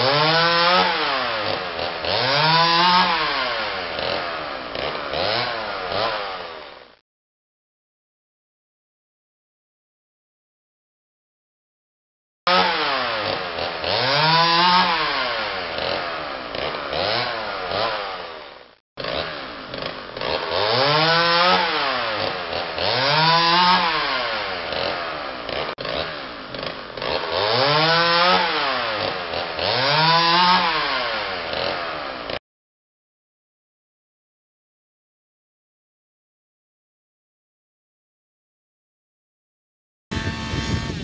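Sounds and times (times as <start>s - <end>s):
chainsaw revving and cutting: 0.0s - 7.0s, 12.5s - 32.4s, 40.1s - 41.0s.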